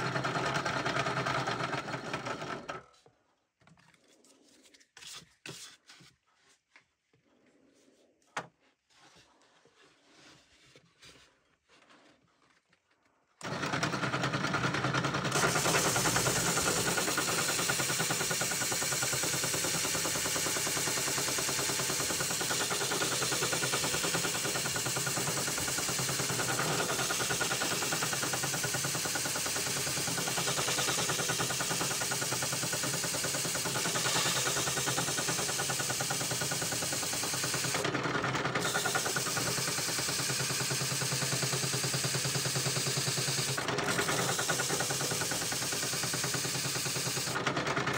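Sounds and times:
drum sander grinding wood: 0:15.3 - 0:37.9.

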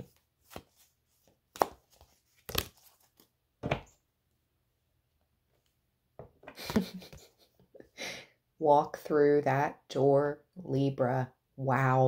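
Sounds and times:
cards slapping: 0:00.0 - 0:00.8, 0:01.5 - 0:03.3.

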